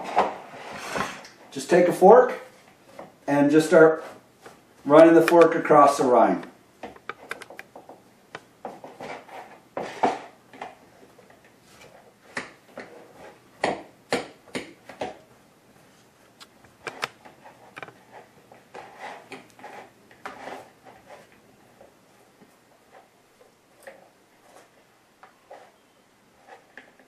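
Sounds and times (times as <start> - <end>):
fork scraping squash: 11.7 - 13.4, 17.3 - 21.4, 23.7 - 27.0.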